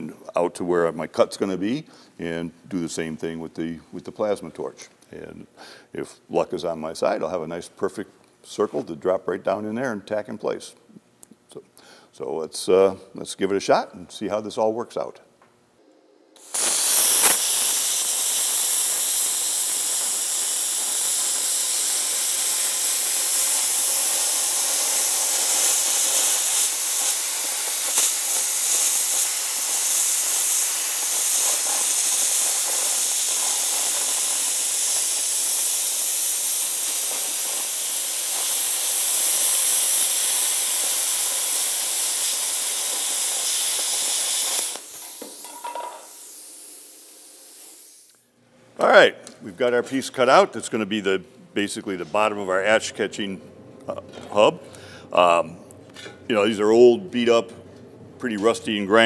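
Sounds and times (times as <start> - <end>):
faint hiss: 16.3 - 48.3
plasma cutter hissing: 16.4 - 48.2.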